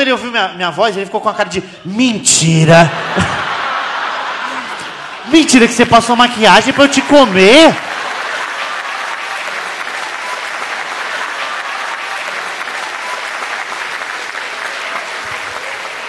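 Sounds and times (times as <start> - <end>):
audience applauding: 3.2 - 16.0.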